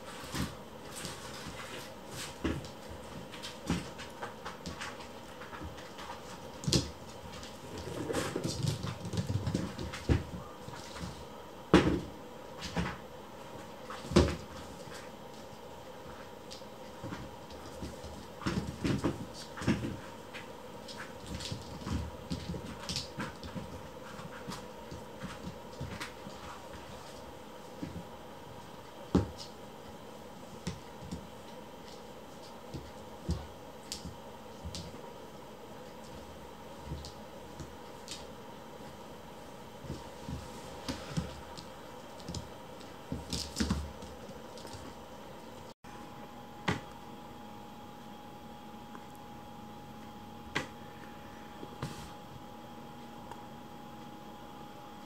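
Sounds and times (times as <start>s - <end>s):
paws scuffing and rustling: 0.0s - 45.7s, 51.6s - 52.4s
faint hum: 0.0s - 55.0s.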